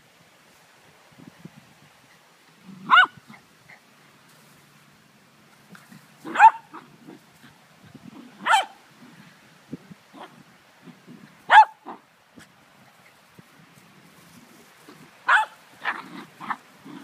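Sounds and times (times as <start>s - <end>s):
dog barking: 2.8s - 3.2s, 6.3s - 6.8s, 8.4s - 8.8s, 11.5s - 12.0s, 15.3s - 16.6s.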